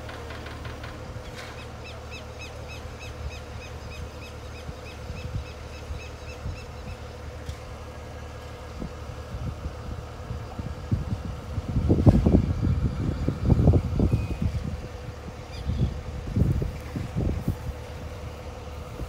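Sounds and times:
crane engine humming: 0.0s - 19.0s
bird chirping: 15.4s - 16.0s.

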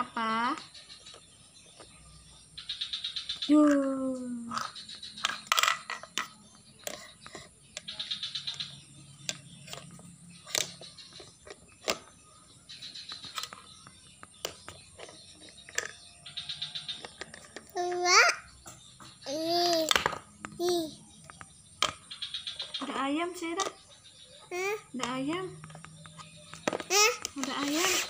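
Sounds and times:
plastic toy pieces clattering: 4.5s - 7.4s, 14.4s - 16.0s, 17.0s - 18.3s, 19.3s - 20.2s, 26.5s - 28.0s.

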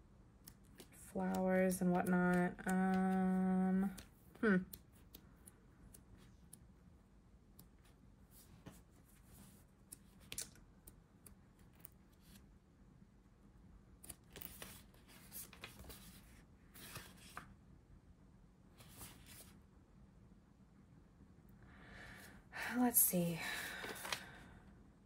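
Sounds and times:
paper pages rustling: 14.1s - 17.5s, 18.8s - 19.6s.

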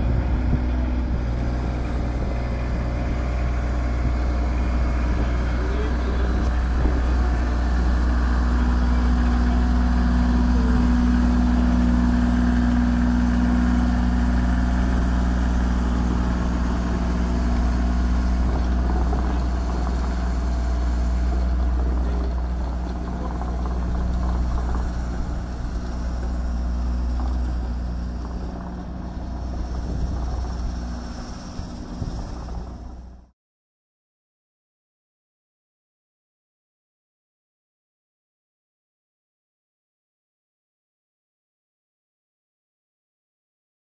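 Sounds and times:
tractor diesel engine running: 0.0s - 33.3s
rotary sweeper brush on dirt: 0.8s - 33.3s.

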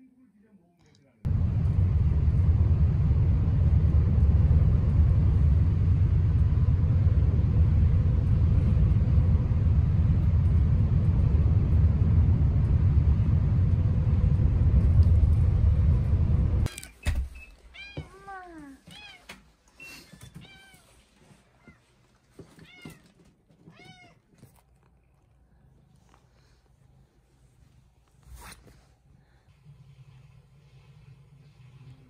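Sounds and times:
vehicle rumble from inside cabin: 1.3s - 16.7s
cat meowing: 23.7s - 24.2s.

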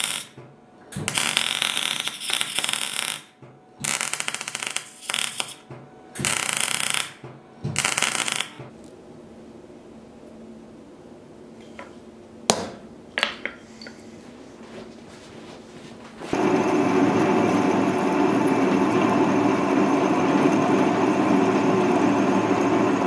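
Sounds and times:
arc welding crackling: 0.0s - 0.4s, 1.0s - 8.8s.

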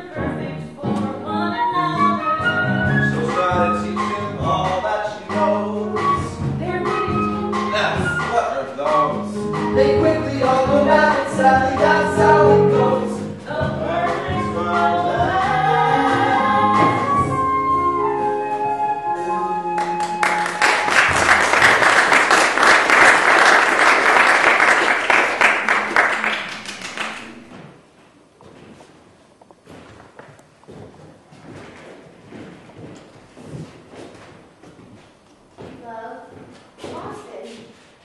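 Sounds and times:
show tune sung live: 0.9s - 18.3s
audience applause: 19.8s - 27.6s.

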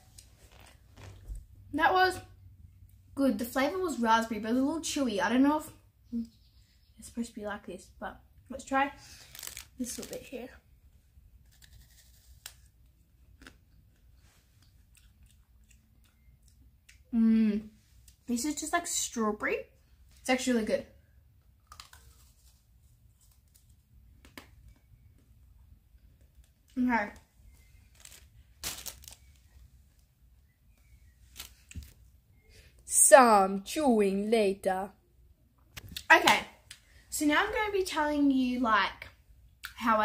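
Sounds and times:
faint crackling rustling: 0.0s - 1.6s, 9.1s - 10.6s, 26.0s - 30.1s
chewing crisp meringue: 11.4s - 17.1s, 21.4s - 23.9s.

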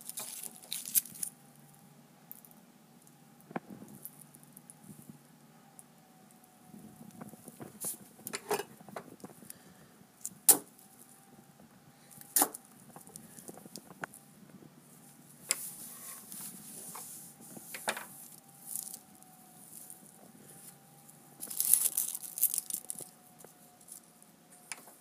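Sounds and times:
foil rustling: 0.0s - 1.3s, 15.5s - 24.2s
aluminium foil crinkling: 0.0s - 1.7s, 17.6s - 24.8s.

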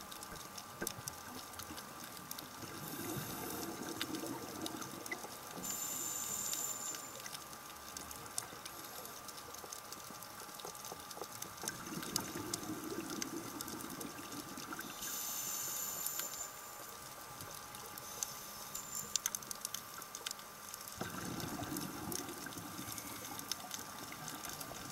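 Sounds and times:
faint steady whine: 0.0s - 24.9s
bubbling exhale: 2.6s - 4.9s, 21.0s - 24.9s
regulator hissing inhale: 2.8s - 3.8s, 5.6s - 7.2s, 14.9s - 16.8s.

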